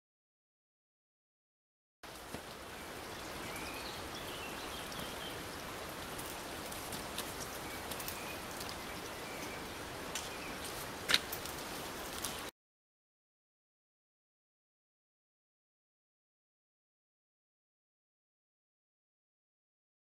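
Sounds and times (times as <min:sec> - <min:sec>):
mountain torrent rushing: 0:02.0 - 0:12.5
bird chirps: 0:03.0 - 0:05.6, 0:07.4 - 0:10.7
footsteps and pole taps on wood: 0:10.1 - 0:11.6.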